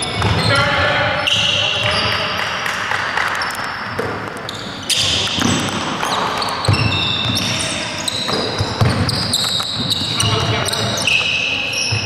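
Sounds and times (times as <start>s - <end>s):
sneakers squeaking on floor: 0.0s - 12.0s
ball bouncing: 3.4s - 12.0s.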